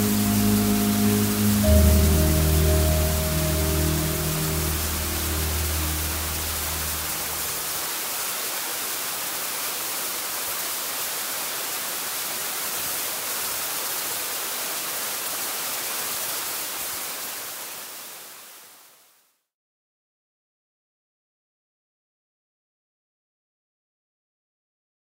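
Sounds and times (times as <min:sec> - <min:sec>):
low music notes: 0:00.0 - 0:07.6
waterfall rushing: 0:00.0 - 0:18.6.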